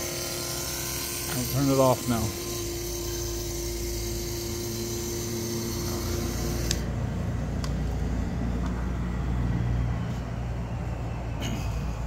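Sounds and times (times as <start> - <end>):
water pump humming and hissing: 0.0 - 8.3.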